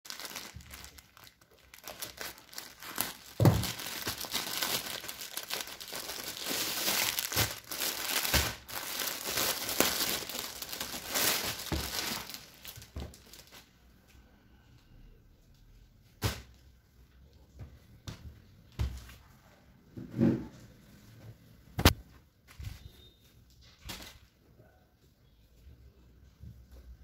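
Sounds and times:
plastic packaging crinkling: 0.1 - 13.7.

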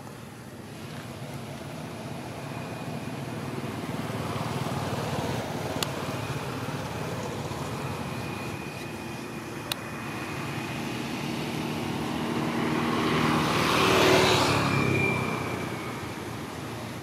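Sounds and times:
motor vehicle passing: 9.8 - 16.8.

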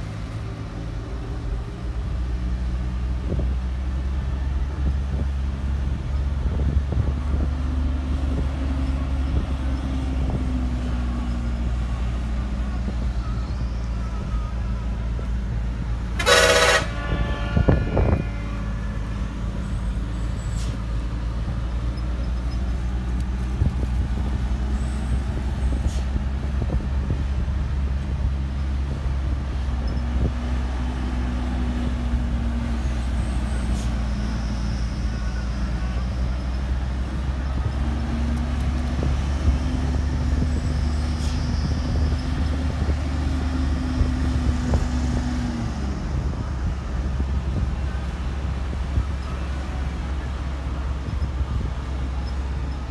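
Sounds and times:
diesel bus engine rumbling: 0.0 - 52.9
bus horn blast: 16.0 - 20.8.

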